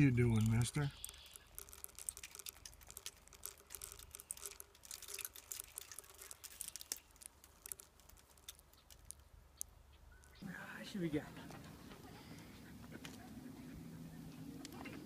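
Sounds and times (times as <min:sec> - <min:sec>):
chipmunk biting seeds: 0:00.0 - 0:10.4.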